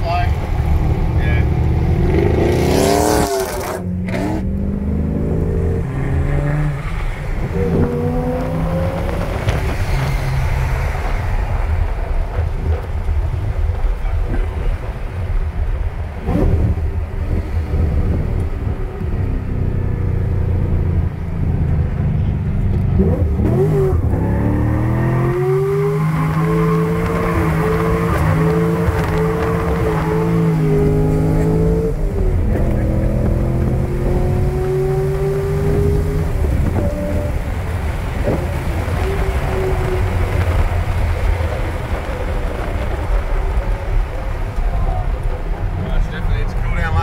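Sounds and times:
car engine accelerating: 0:00.3 - 0:47.0.

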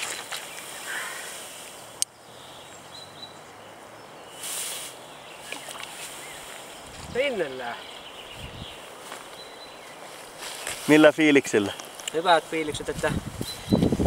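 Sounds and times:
soft water splash: 0:05.4 - 0:06.2.

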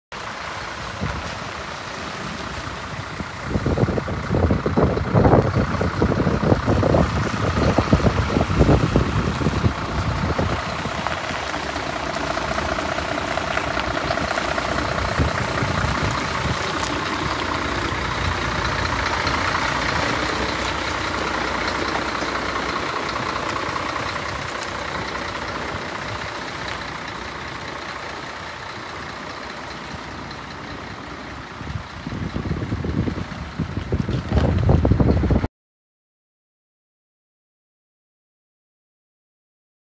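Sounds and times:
diesel truck engine idling: 0:00.2 - 0:35.5
low thumps and rumble: 0:03.0 - 0:26.7, 0:31.6 - 0:35.5.

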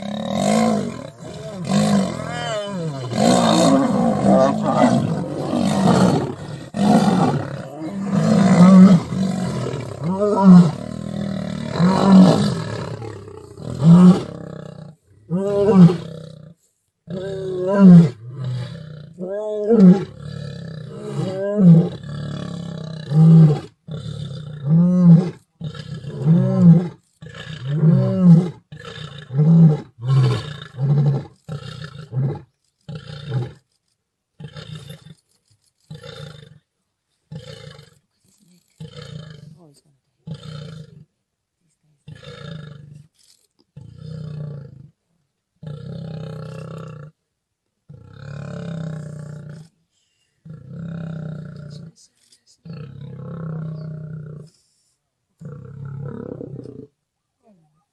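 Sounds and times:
lion roaring and grunting: 0:00.0 - 0:16.5, 0:17.1 - 0:33.6.

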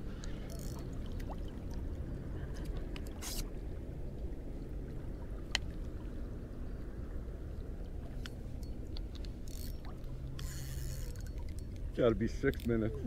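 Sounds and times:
steady low rumble: 0:00.0 - 0:13.0
water lapping against boat hull: 0:00.0 - 0:13.0.

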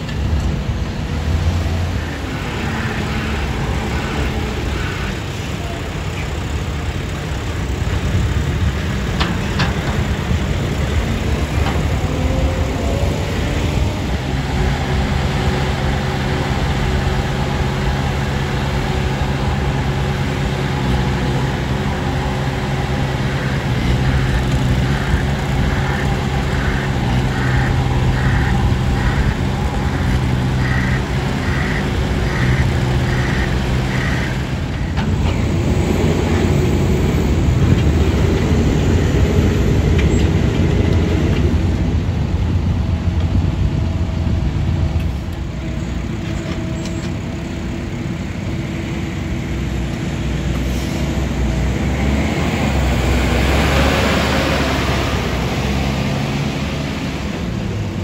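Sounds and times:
excavator engine digging: 0:00.0 - 0:58.0
trench roller engine pulsing: 0:00.0 - 0:58.0.

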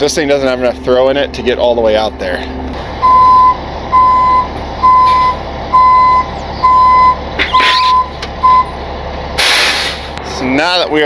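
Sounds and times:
truck engine running low: 0:00.0 - 0:11.0
truck back-up alarm beeping: 0:02.5 - 0:09.8.

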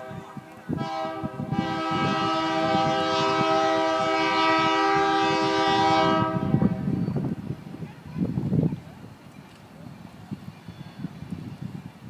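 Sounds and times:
locomotive air horn: 0:00.0 - 0:06.9.

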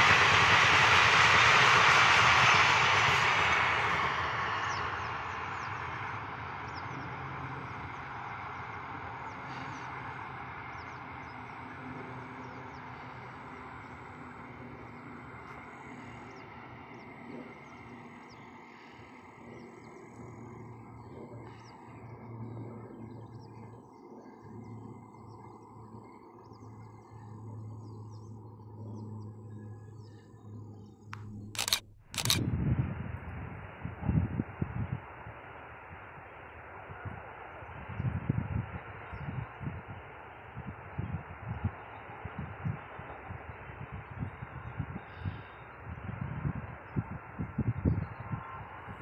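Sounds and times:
passing train rumble: 0:00.0 - 0:22.1
low distant hum: 0:00.0 - 0:49.0.

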